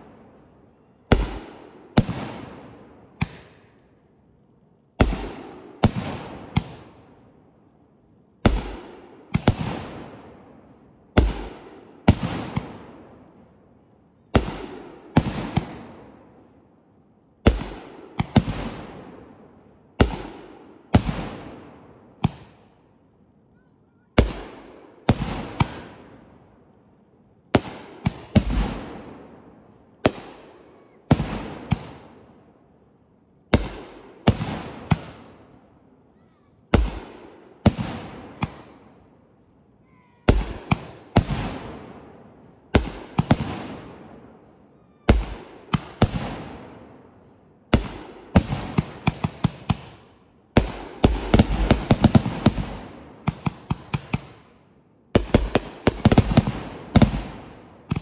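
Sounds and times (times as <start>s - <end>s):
firework bursting bangs: 1.1s - 3.7s, 5.0s - 7.0s, 8.5s - 10.4s, 11.1s - 12.9s, 14.4s - 16.0s, 17.5s - 19.2s, 20.0s - 22.6s, 24.2s - 26.1s, 27.6s - 29.3s, 31.1s - 32.1s, 33.5s - 35.4s, 36.8s - 38.9s, 40.3s - 44.2s, 45.1s - 47.0s, 47.8s - 54.4s, 55.2s - 58.0s.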